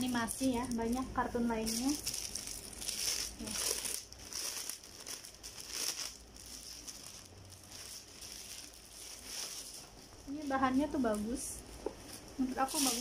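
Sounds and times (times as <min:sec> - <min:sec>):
plastic bag crinkling: 0:00.0 - 0:11.4, 0:12.1 - 0:13.0.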